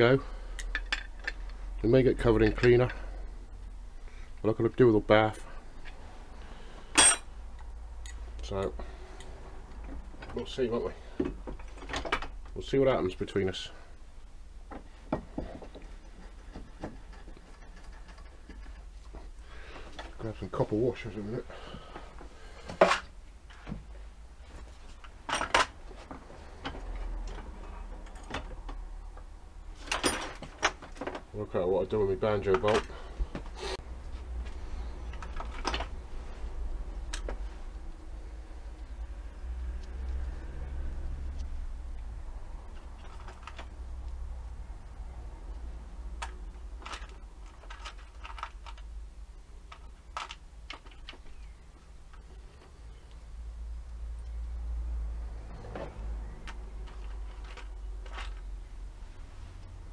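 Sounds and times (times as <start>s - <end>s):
small metal parts clicking: 46.2s - 48.9s.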